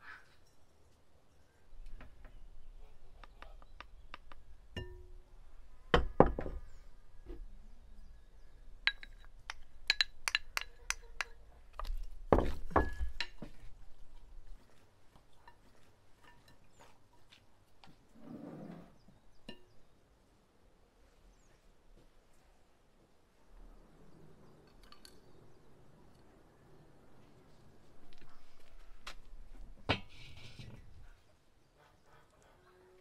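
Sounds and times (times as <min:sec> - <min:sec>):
dishes and spoon clinking: 0:08.9 - 0:11.3, 0:12.4 - 0:13.5, 0:15.4 - 0:17.2.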